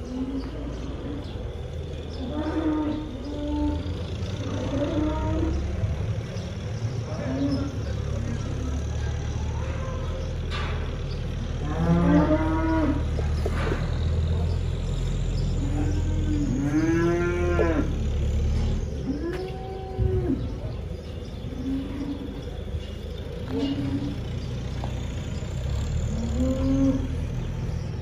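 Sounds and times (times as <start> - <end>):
cattle mooing: 2.1 - 6.1, 11.4 - 14.5, 15.4 - 22.9, 26.0 - 27.8.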